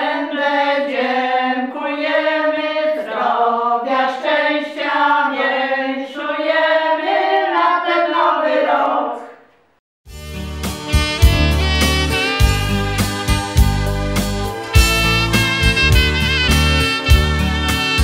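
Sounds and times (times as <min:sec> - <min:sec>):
women singing together: 0:00.0 - 0:09.4.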